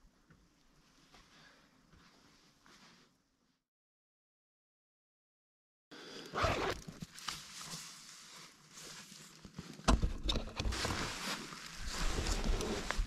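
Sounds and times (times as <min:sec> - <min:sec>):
tent fabric rustling: 0:06.4 - 0:09.9, 0:10.6 - 0:13.0.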